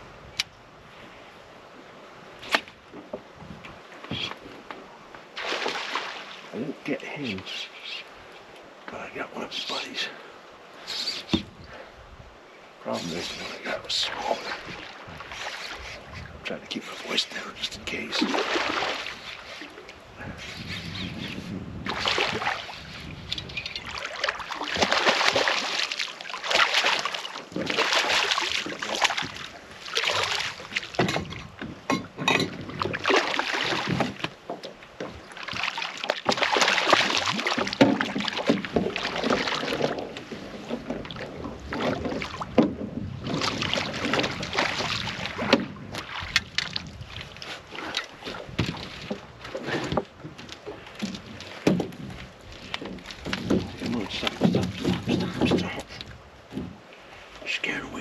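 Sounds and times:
water splashing from thrashing fish: 5.3s - 6.5s, 18.0s - 19.9s, 21.9s - 23.0s, 23.6s - 56.0s
sharp knocks and clicks: 31.0s - 32.6s, 41.9s - 43.0s, 49.9s - 55.8s.

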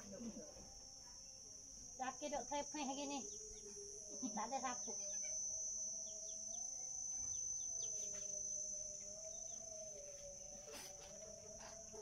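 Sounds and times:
faint low wavering hum: 0.0s - 12.0s
high-pitched insect drone: 0.0s - 12.0s
bird chirps: 2.8s - 12.0s.

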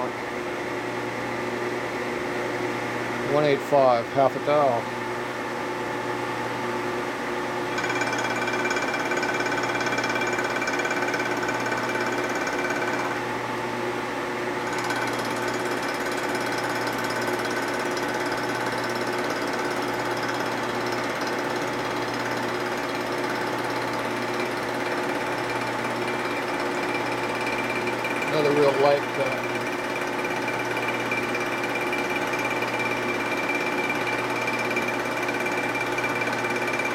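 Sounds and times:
milling machine cutting metal: 7.7s - 13.2s, 14.7s - 36.9s.

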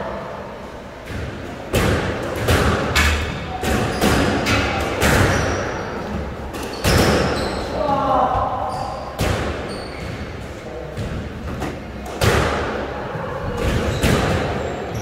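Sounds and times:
squash ball hits: 1.0s - 15.0s.

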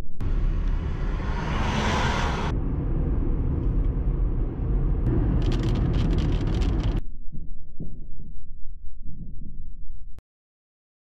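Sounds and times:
car cabin road and engine rumble: 0.2s - 7.0s.

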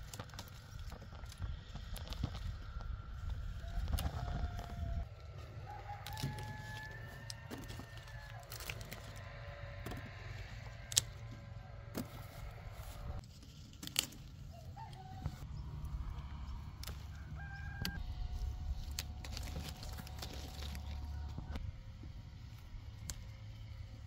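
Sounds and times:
low rumble: 0.1s - 13.2s, 15.2s - 24.0s
rooster crowing: 3.6s - 13.2s, 14.6s - 15.4s, 16.9s - 18.1s.

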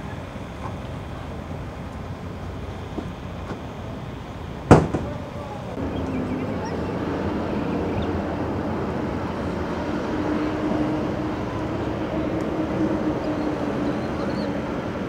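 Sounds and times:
engine running: 0.0s - 15.0s
wash of noise: 0.0s - 15.0s.

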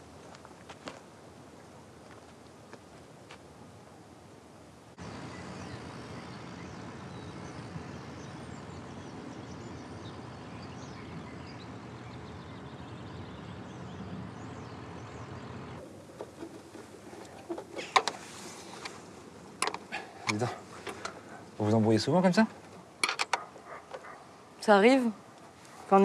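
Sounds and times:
small birds chirping: 5.0s - 26.0s.

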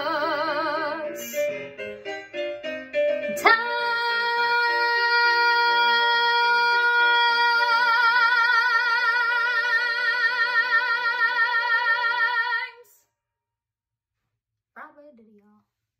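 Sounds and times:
piano accompaniment: 0.0s - 12.3s.

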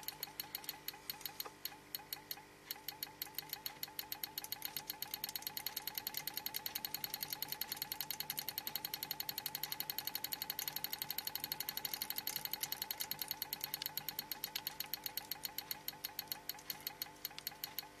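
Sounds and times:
small motor ticking rapidly: 0.0s - 18.0s.

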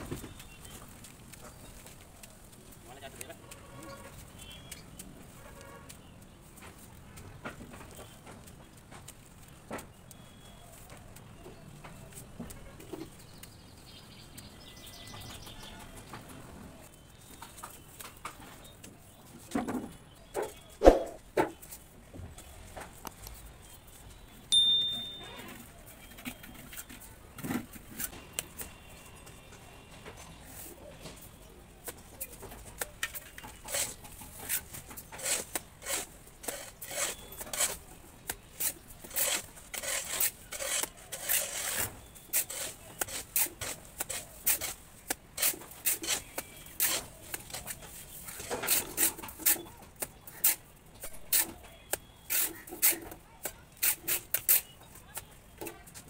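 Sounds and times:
trowel scraping brick wall: 32.8s - 54.8s.

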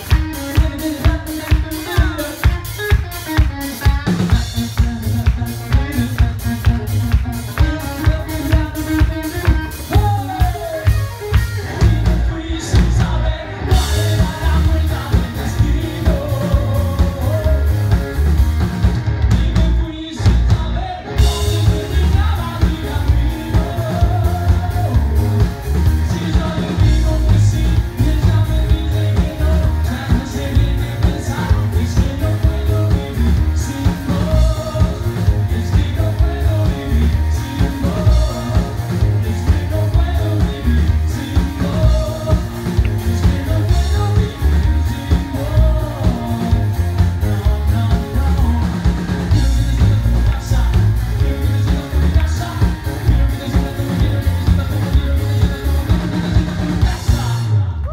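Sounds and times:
live rock band playing: 0.0s - 57.9s
man singing: 0.0s - 57.9s.

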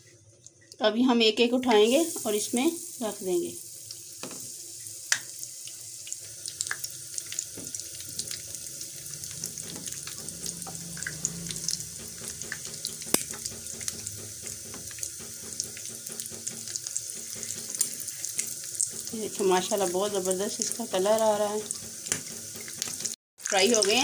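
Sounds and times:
deep-frying sizzle: 0.0s - 24.0s
oil popping: 6.0s - 19.4s.

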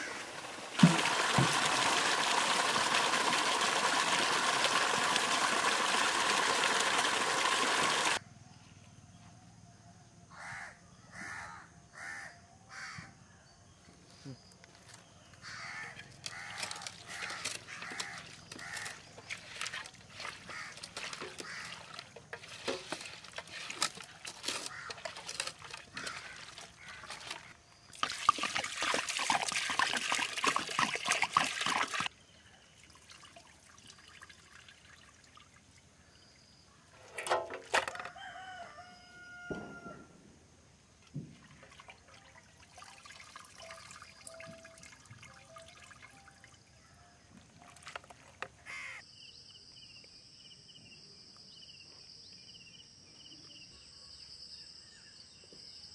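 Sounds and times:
water running: 0.0s - 8.2s, 16.3s - 32.1s
birds calling: 14.6s - 27.6s, 48.4s - 49.0s.

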